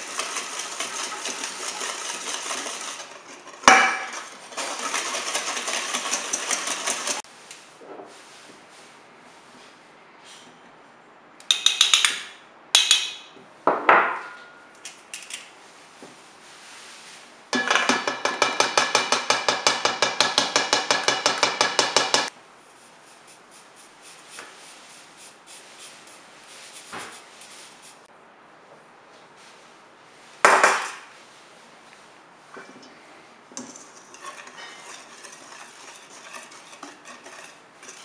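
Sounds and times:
fingers scratching flour through mesh: 0.0s - 7.2s, 33.8s - 38.0s
metal sieve knocking on bowl: 17.6s - 22.3s.

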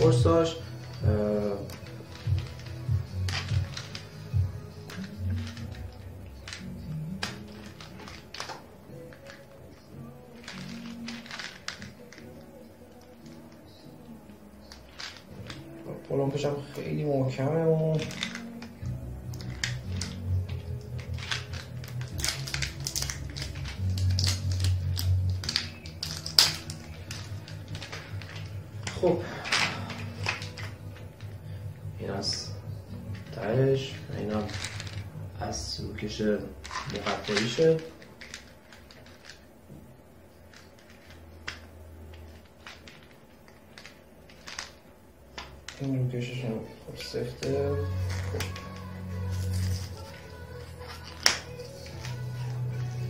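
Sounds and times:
background music bass line: 0.0s - 11.2s
plastic shrink-wrap crinkling: 0.0s - 53.0s
plastic seal clicks and crackles: 1.6s - 9.4s, 17.8s - 31.4s.

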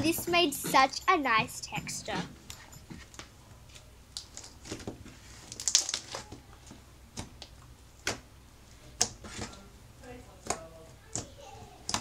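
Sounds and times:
slime crackling and squelching: 3.7s - 7.6s.

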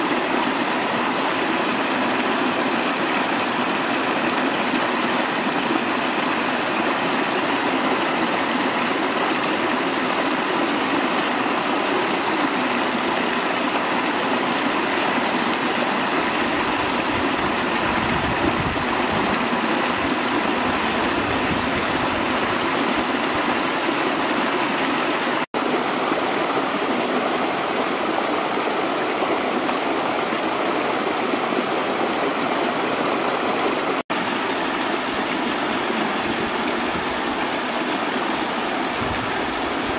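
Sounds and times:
stream splashing over stones: 0.0s - 39.9s.

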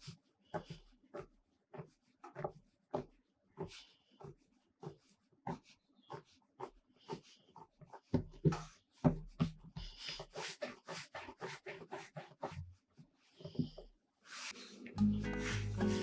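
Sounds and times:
hands patting bread dough: 0.0s - 12.7s.

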